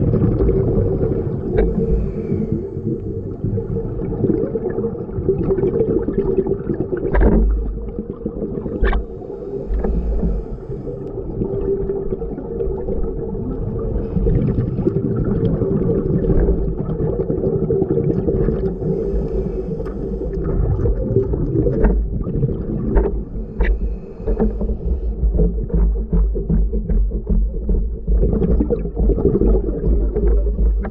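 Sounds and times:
water gurgling: 0:00.0 - 0:30.9
low motor hum: 0:23.0 - 0:30.9.

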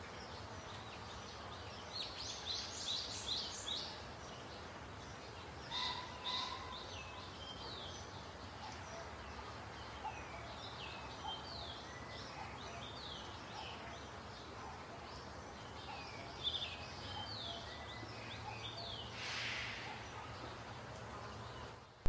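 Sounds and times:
small birds chirping: 0:00.0 - 0:22.0
soft hiss: 0:12.9 - 0:22.0.

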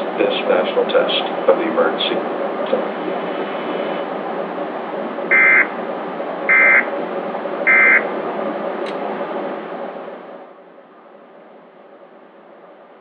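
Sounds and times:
broadcast hiss: 0:00.0 - 0:13.0
digital data tone bursts: 0:05.3 - 0:05.7, 0:06.5 - 0:06.9, 0:07.7 - 0:08.0.

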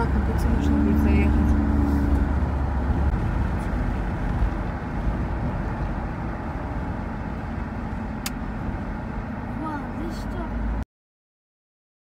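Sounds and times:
deep low rumble: 0:00.0 - 0:09.6
car road and engine noise: 0:00.0 - 0:10.8.

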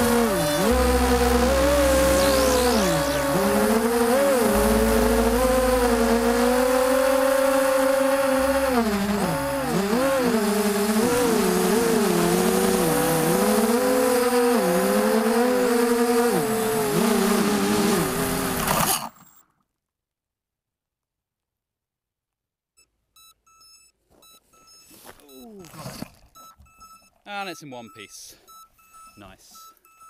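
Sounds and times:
drone motors whining: 0:00.0 - 0:19.2.

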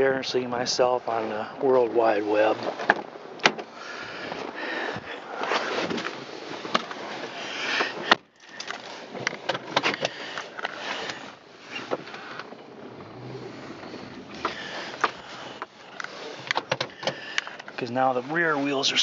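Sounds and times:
car engine: 0:00.0 - 0:19.0
tyres in snow: 0:01.0 - 0:09.2.

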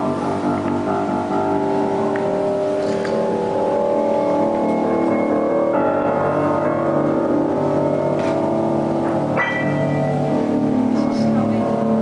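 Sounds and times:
sustained chords music: 0:00.0 - 0:12.0.

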